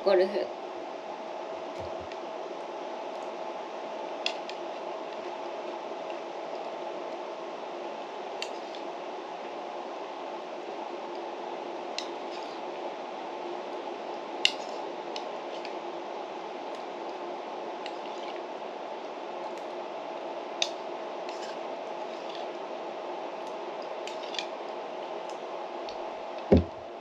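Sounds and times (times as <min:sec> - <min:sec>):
room hum: 0:00.0 - 0:27.0
spoon scraping a bowl: 0:21.3 - 0:22.5
bowl thump on table: 0:26.5 - 0:26.7.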